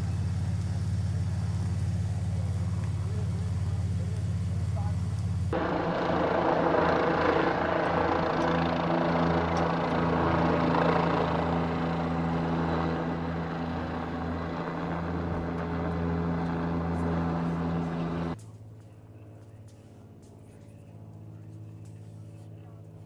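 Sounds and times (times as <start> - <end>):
helicopter rotor and turbine drone: 0.0 - 18.4.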